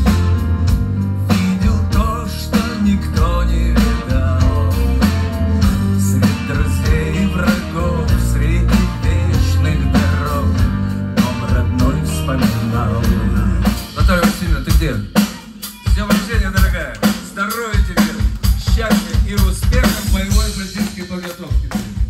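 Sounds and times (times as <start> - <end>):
live rock band playing: 0.0 - 22.0
audience cheering and clapping: 15.3 - 22.0.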